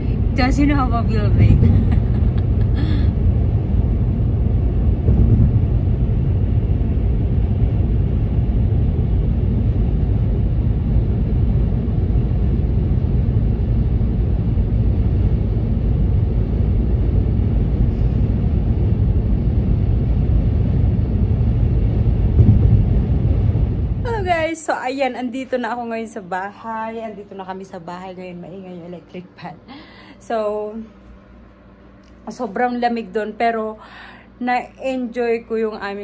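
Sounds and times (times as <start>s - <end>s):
car interior road rumble: 22.0s - 24.5s.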